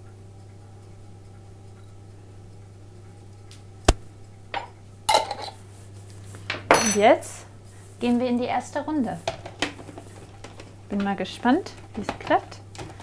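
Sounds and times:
spoon clinking on glass jar: 6.7s - 7.1s.

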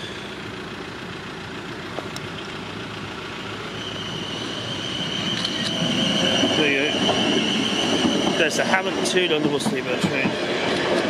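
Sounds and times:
electric train rumble: 0.0s - 11.0s
steady high-pitched tone: 3.5s - 9.6s.

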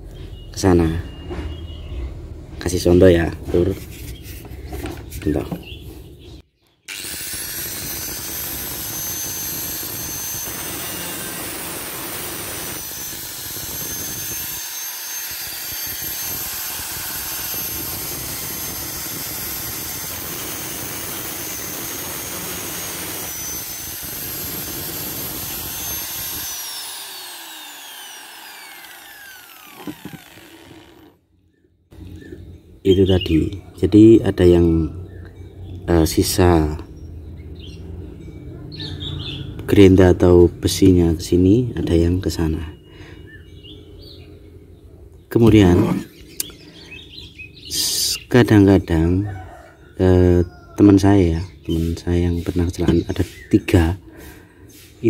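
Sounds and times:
angle grinder cutting steel: 6.9s - 31.2s
grinder disc spinning down: 6.9s - 31.2s.

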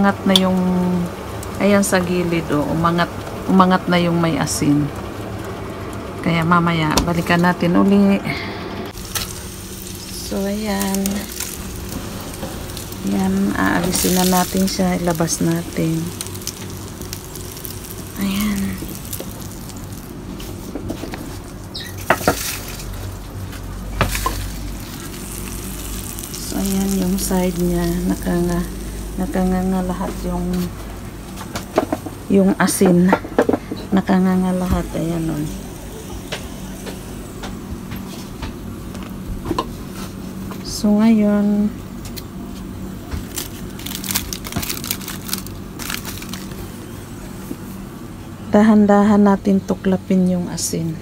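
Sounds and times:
pork sizzling: 0.0s - 39.0s, 42.1s - 48.3s
steady low hum: 0.0s - 51.0s
salt crust crunching in foil: 9.0s - 28.7s, 43.2s - 46.8s.

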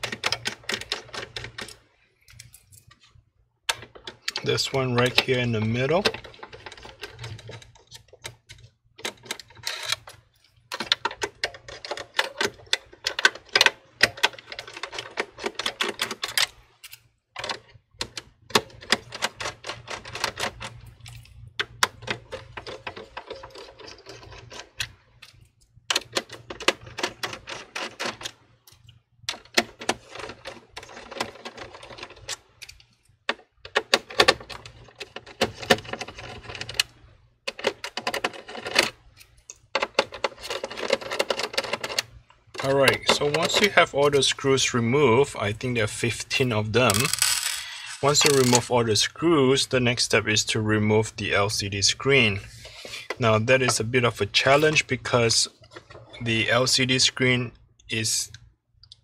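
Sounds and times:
screwdriver clicking and scraping: 46.9s - 48.6s.

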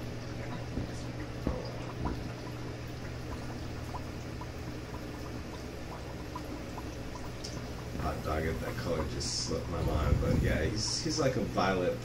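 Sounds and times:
aquarium water bubbling: 0.0s - 12.0s
small bubble pops: 0.5s - 9.2s.

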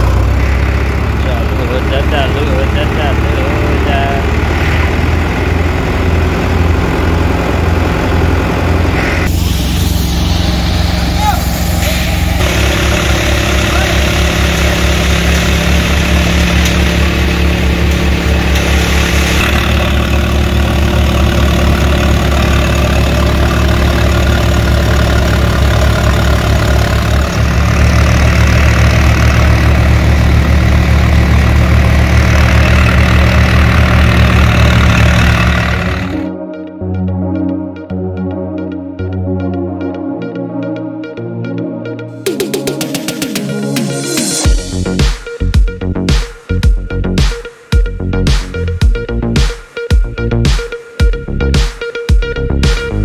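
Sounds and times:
thresher drum churning: 0.0s - 36.3s
tractor diesel engine running: 0.0s - 37.9s, 42.2s - 47.2s.

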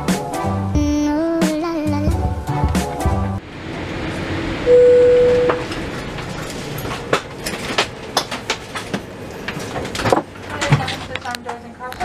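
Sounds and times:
cabin hum: 0.3s - 12.0s
airliner cabin chime: 4.6s - 5.8s.

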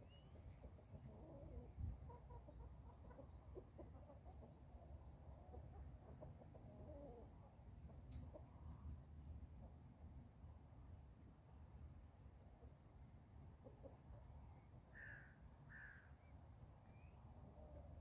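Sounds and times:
hens clucking: 0.6s - 8.5s.

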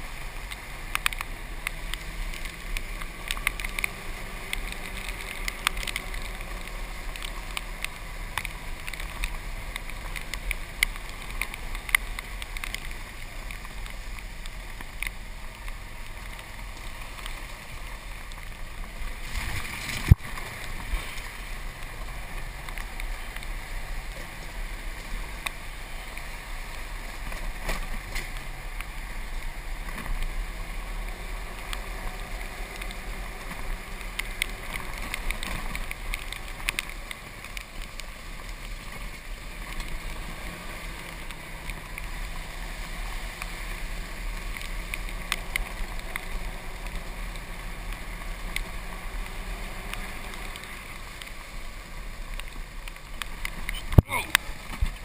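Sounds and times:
golf cart motor and tyre rumble: 0.0s - 55.0s
small clicks and knocks: 0.4s - 30.4s, 31.0s - 42.4s, 43.0s - 55.0s.

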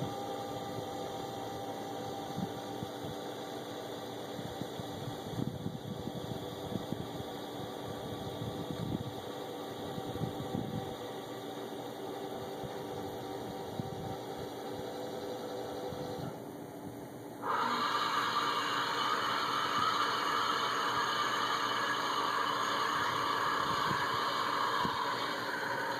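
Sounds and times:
crane motor humming: 0.0s - 25.9s
wind rumbling on microphone: 4.4s - 7.3s, 8.0s - 9.2s, 9.9s - 11.0s, 23.0s - 25.3s.

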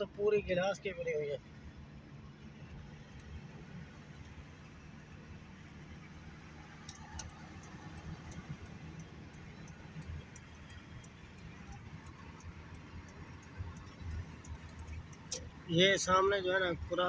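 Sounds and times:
vehicle road and engine rumble: 0.0s - 17.0s
faint small clicks: 6.5s - 16.4s.

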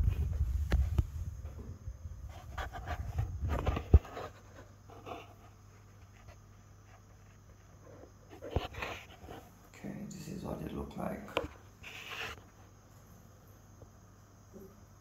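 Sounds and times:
rustling and handling noise: 0.0s - 9.7s, 11.2s - 13.2s
faint low hum: 0.0s - 15.0s.

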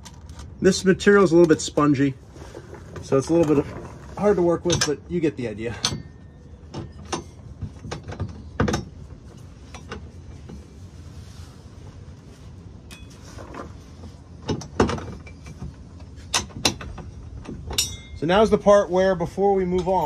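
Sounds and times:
metal bracket and bolts clicking: 3.2s - 10.6s, 14.4s - 18.6s, 19.6s - 20.0s.

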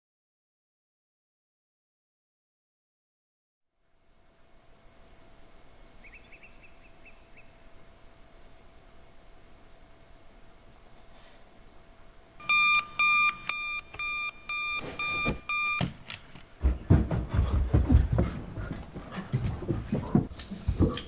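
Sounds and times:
alarm clock beeping: 12.4s - 15.9s
heavy thumps: 16.6s - 21.0s.

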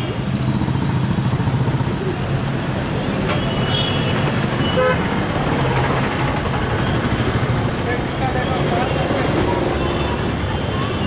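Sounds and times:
street traffic: 0.0s - 11.0s
vehicle horn toots: 4.6s - 5.0s.

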